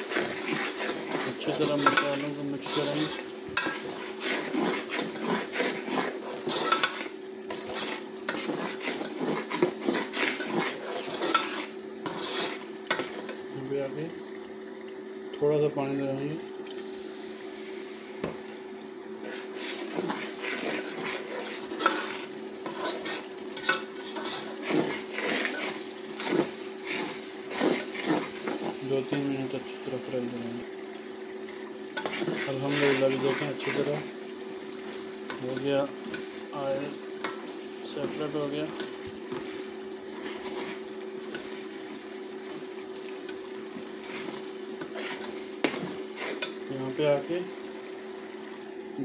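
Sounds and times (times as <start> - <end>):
metal spoon scraping a pot: 0.0 - 13.2, 19.2 - 28.8, 32.0 - 34.0, 40.2 - 41.6, 44.0 - 46.6
masala sizzling: 0.0 - 49.0.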